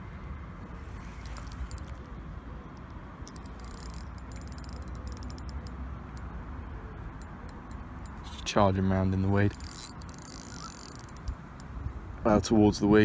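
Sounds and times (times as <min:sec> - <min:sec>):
fishing reel clutch clicking: 0:00.8 - 0:02.1, 0:02.7 - 0:06.3, 0:07.1 - 0:08.4, 0:09.4 - 0:11.8.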